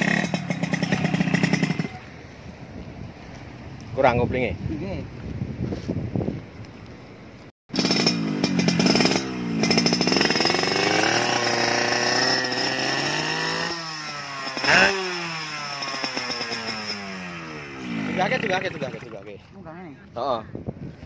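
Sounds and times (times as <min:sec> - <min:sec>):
two-stroke motorcycle engine revving: 0:00.0 - 0:02.0, 0:07.7 - 0:19.1.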